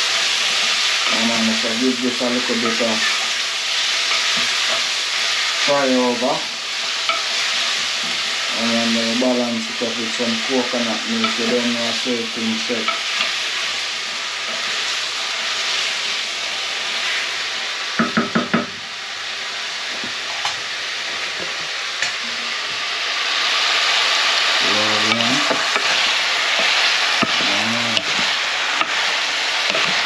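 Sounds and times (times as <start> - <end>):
vegetables sizzling in oil: 0.0 - 30.0
wooden spoon stirring pot: 0.1 - 15.9, 24.9 - 30.0.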